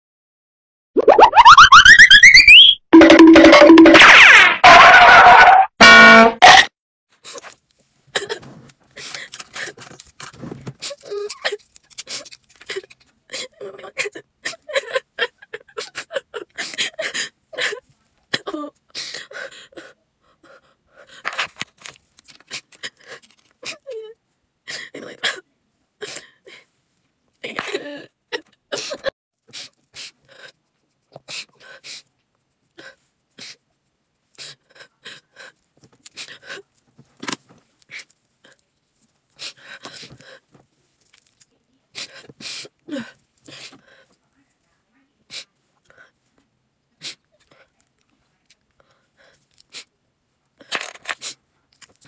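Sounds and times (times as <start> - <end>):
woman sobbing: 12.7 - 20.6.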